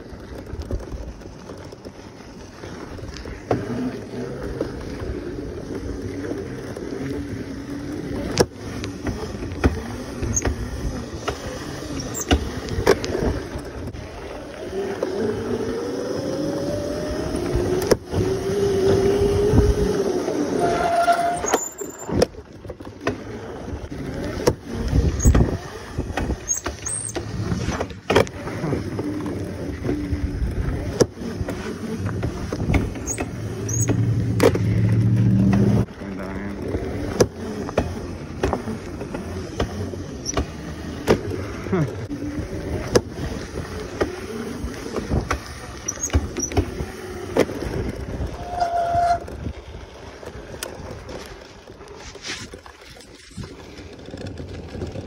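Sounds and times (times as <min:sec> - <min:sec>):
knocks and rattles over bumps: 0:00.0 - 0:03.9, 0:07.7 - 0:14.0, 0:20.8 - 0:35.9, 0:36.6 - 0:42.2
bike running rumble: 0:00.0 - 0:55.0
electric dirt bike motor whine: 0:02.3 - 0:55.0.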